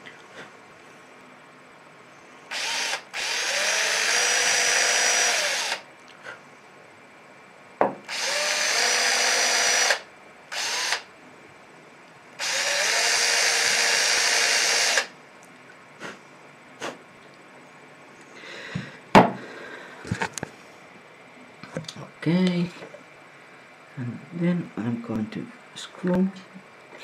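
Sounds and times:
cordless drill whining: 2.5 - 5.8, 8.1 - 11.1, 12.4 - 15.1.

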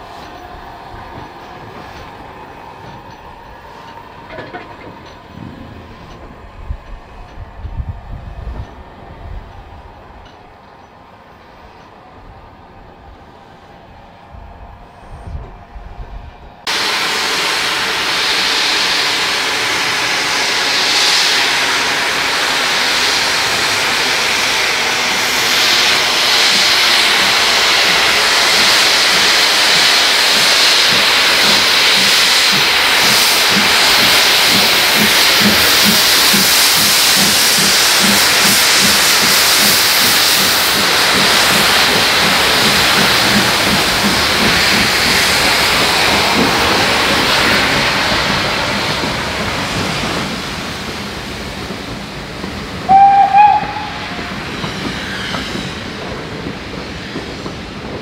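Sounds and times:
steam locomotive hissing steam: 13.2 - 58.0.

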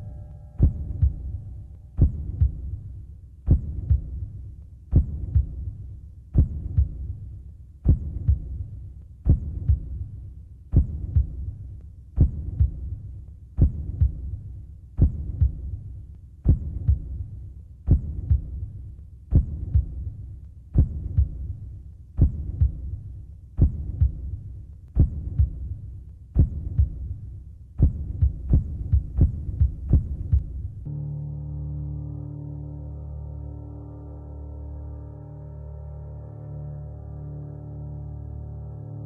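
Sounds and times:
low hum: 0.0 - 39.0
heartbeat double thump: 0.6 - 1.4, 2.0 - 2.8, 3.5 - 4.3, 4.9 - 5.7, 6.4 - 7.2, 7.8 - 10.0, 10.7 - 11.5, 12.2 - 13.0, 13.6 - 14.4, 15.0 - 15.8, 16.4 - 17.3, 17.9 - 18.7, 19.3 - 20.1, 20.7 - 21.6, 22.2 - 23.0, 23.6 - 24.4, 25.0 - 25.8, 26.4 - 27.2, 27.8 - 30.9.

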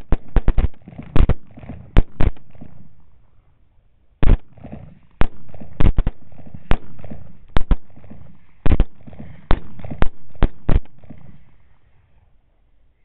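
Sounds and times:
rapid rifle shots: 0.0 - 3.0, 4.2 - 11.5.

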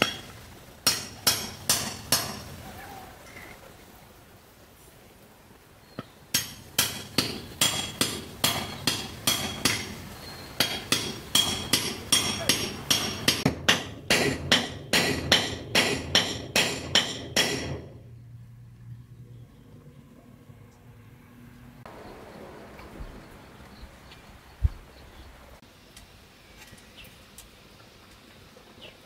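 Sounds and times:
hammer striking steel blade: 10.6 - 18.0.

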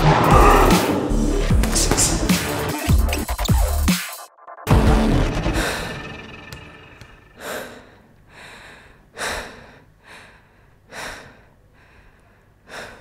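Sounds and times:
person breathing heavily: 5.3 - 6.4, 7.2 - 13.0.

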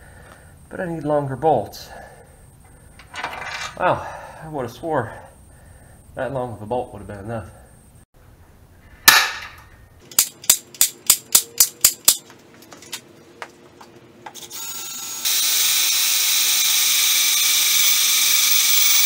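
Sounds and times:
sharp knock: 9.1 - 9.6
power drill boring into steel: 14.4 - 19.0.

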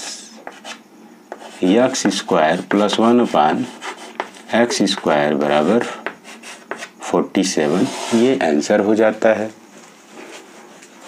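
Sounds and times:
chalk scratching and tapping: 0.4 - 6.9
man speaking: 4.5 - 6.0, 7.1 - 9.6.

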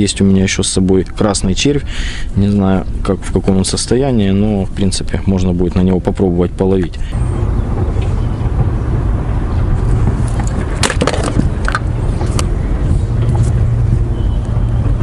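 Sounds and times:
wind rumbling on microphone: 7.1 - 15.0.

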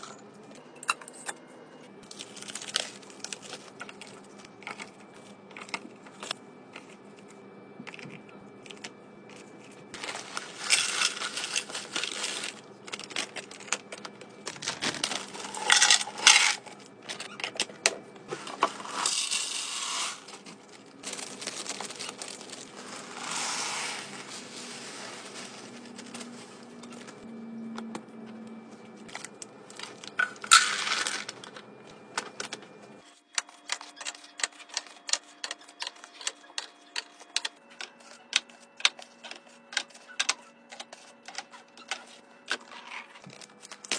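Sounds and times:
cereal pouring into plastic canister: 10.0 - 12.6, 18.6 - 20.2, 21.0 - 26.2.

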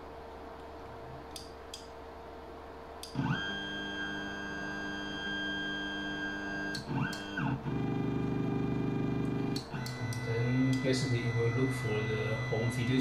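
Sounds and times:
stepper motor whine: 3.0 - 13.0.

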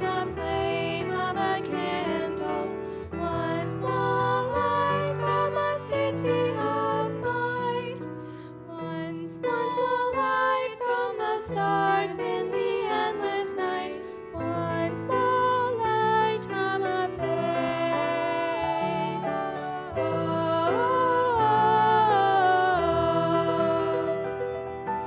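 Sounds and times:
two women singing a duet: 0.0 - 24.4.

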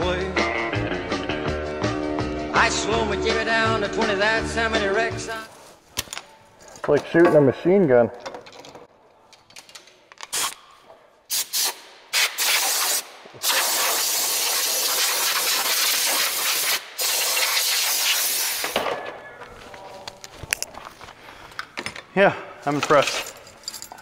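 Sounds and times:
air blow gun hissing: 11.3 - 18.8.

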